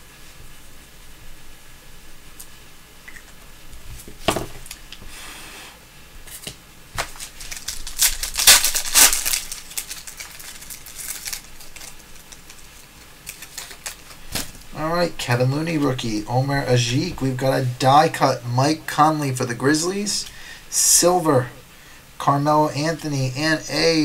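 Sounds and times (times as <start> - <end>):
plastic wrapper tearing and crinkling: 6.3 - 14.7.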